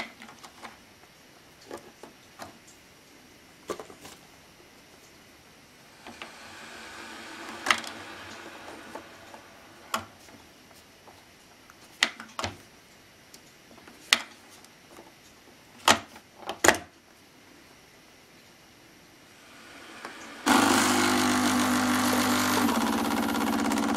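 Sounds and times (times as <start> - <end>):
soft rushing noise: 5.8 - 11.0.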